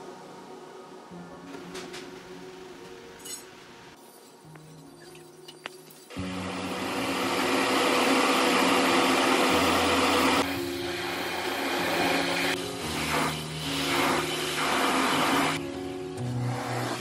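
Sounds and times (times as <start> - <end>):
paint spray gun hissing: 8.0 - 15.6.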